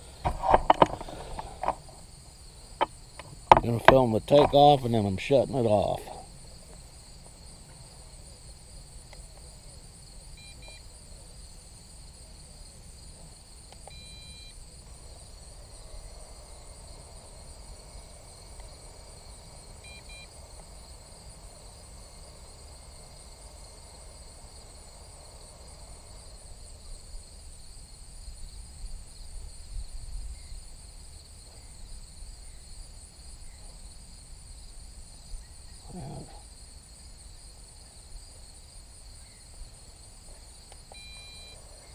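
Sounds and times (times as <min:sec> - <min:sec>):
insects chorus: 0:00.0 - 0:41.9
short electronic beeps: 0:41.0 - 0:41.6.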